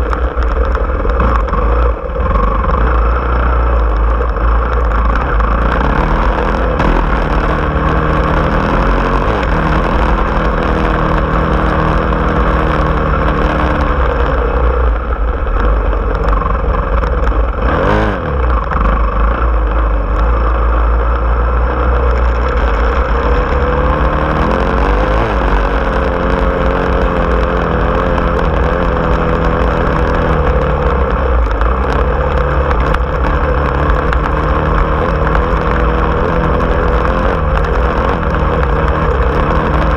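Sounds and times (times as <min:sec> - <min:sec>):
off-road vehicle engine running: 0:00.0 - 0:39.9.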